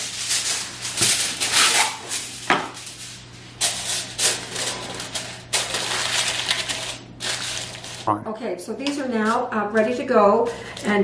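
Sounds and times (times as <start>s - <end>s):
aluminium foil tearing: 0.0s - 8.1s
foil crinkling: 0.0s - 8.1s.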